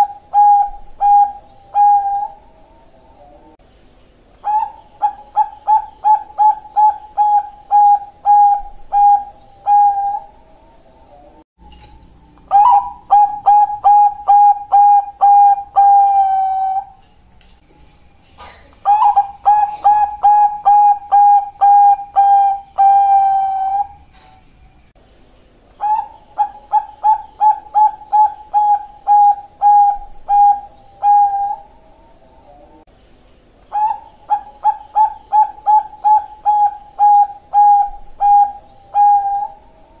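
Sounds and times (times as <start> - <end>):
dove cooing: 0.0 - 3.6, 4.4 - 11.4, 12.4 - 17.0, 18.4 - 24.5, 25.8 - 32.8, 33.7 - 40.0.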